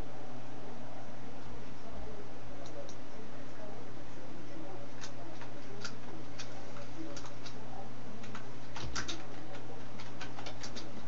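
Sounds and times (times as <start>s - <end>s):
steady low hum: 0.0s - 11.0s
computer keyboard typing: 5.0s - 7.6s, 8.2s - 11.0s.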